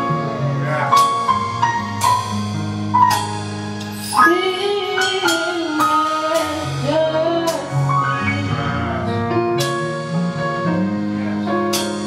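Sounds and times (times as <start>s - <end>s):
electric bass: 0.0s - 12.0s
piano: 0.0s - 12.0s
drum and cymbal strikes: 0.9s - 8.0s, 11.7s - 12.0s
girl singing: 4.2s - 8.6s.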